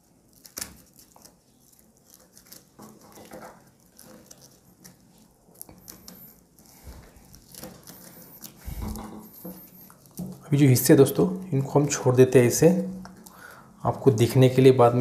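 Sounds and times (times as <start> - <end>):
rope rustling and clicking: 0.3 - 10.5.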